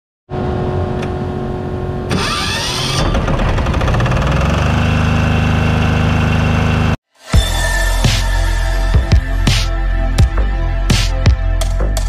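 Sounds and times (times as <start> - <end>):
diesel generator engine running: 0.4 - 7.0
electric starter whirring: 2.1 - 9.3.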